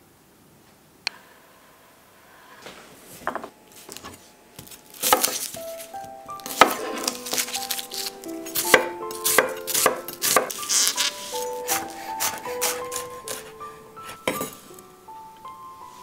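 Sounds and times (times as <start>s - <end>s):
knife chopping on wooden board: 4.0s - 14.6s
light background music: 4.0s - 16.0s.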